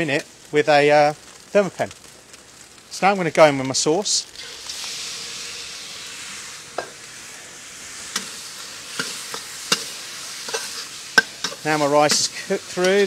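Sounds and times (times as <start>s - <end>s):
rice sizzling in a wok: 0.0s - 13.0s
spatula scraping a wok: 4.4s - 13.0s.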